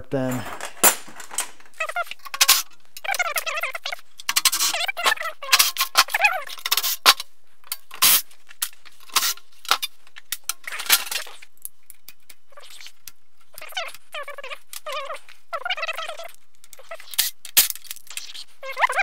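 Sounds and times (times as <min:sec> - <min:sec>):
metal clinking and clattering: 0:00.2 - 0:03.2.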